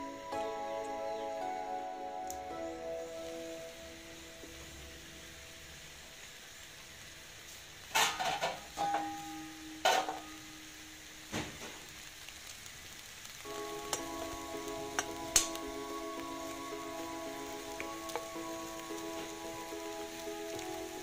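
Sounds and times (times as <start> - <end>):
soft background music: 0.0 - 6.3, 13.4 - 21.0
corn sizzling in frying pan: 1.9 - 21.0.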